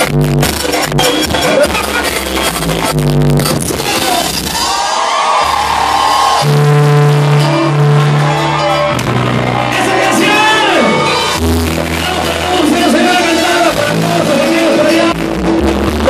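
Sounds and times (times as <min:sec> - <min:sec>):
crowd noise: 0:00.0 - 0:16.0
live band music: 0:00.0 - 0:16.0
voices singing or shouting: 0:03.8 - 0:11.4.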